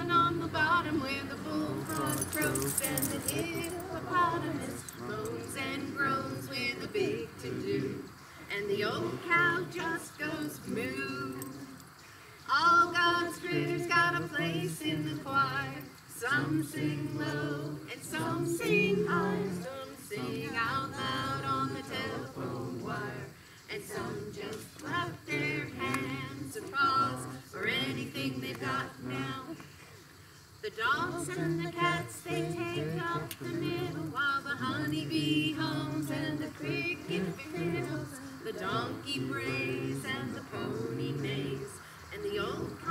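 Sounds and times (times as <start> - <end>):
women singing a hymn: 0.0 - 42.9.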